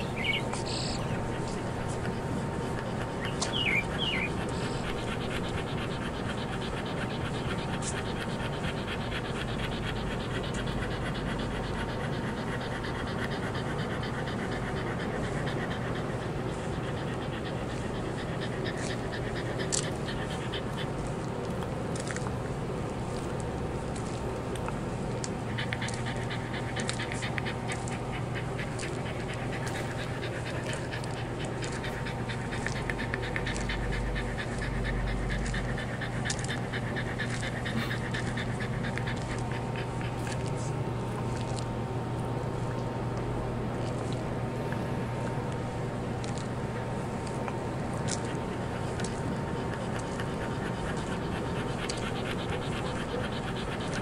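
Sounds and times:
bird chirping: 0:00.0 - 0:02.2, 0:02.9 - 0:04.9
dog panting: 0:00.0 - 0:54.0.

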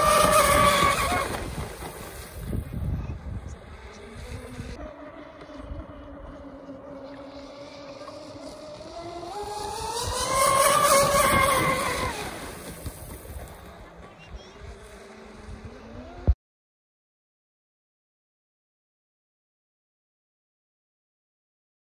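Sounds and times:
electric motors whining: 0:00.0 - 0:01.4, 0:03.1 - 0:16.4
rc boat passing: 0:00.0 - 0:16.4.

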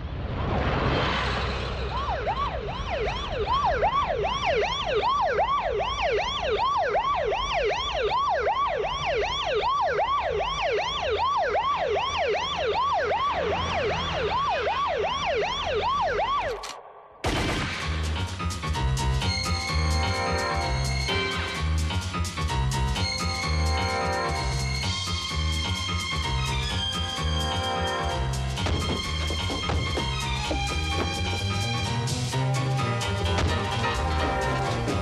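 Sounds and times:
siren in fast yelp: 0:01.9 - 0:16.7, 0:23.1 - 0:31.9
music: 0:17.3 - 0:35.0.

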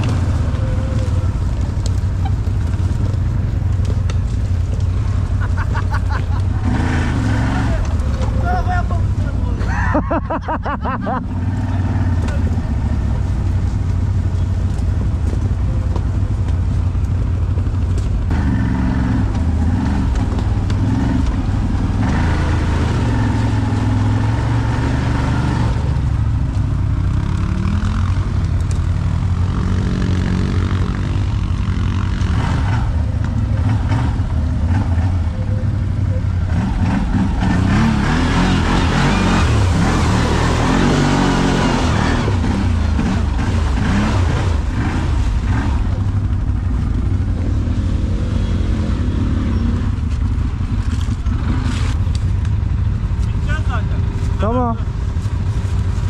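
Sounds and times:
quad bike engine revving: 0:00.0 - 0:16.7, 0:17.4 - 0:56.0.

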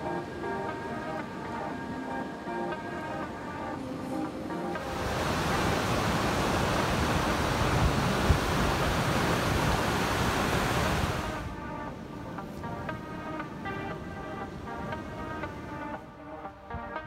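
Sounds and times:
creek rushing over rocks: 0:04.8 - 0:11.5.

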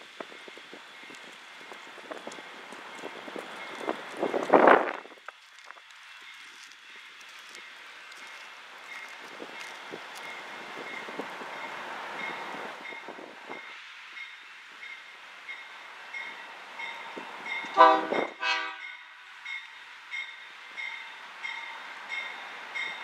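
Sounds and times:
train rumbling: 0:00.0 - 0:23.0
locomotive air horn blasts: 0:17.7 - 0:19.0.

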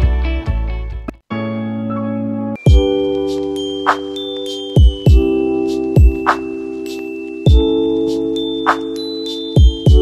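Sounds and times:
chime-like chords with a beat: 0:02.5 - 0:10.0.

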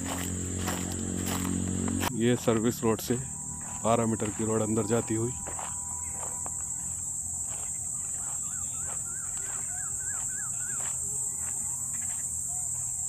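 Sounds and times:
crickets trilling: 0:00.0 - 0:13.0
bird call: 0:07.6 - 0:12.9.

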